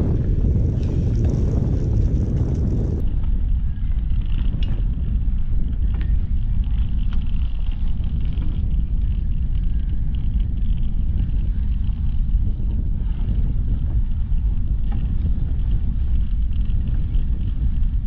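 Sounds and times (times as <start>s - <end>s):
bicycle tyres hissing on pavement: 0.0s - 3.0s
wind buffeting microphone: 0.0s - 18.0s.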